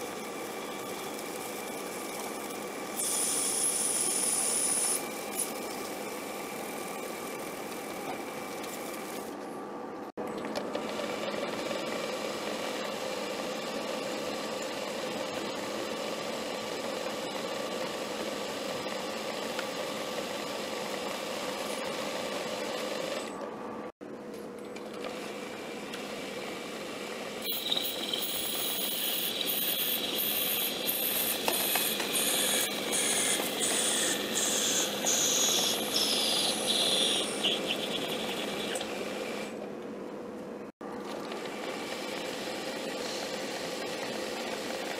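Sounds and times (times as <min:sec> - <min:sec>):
cutting tool squealing: 0:27.4 - 0:38.9
metal lathe humming: 0:27.4 - 0:39.6.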